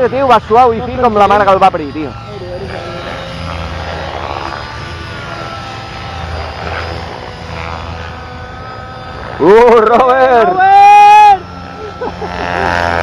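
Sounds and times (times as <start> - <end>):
faint wavering whine: 0.0 - 13.0
model helicopter rotor hum: 0.0 - 13.0.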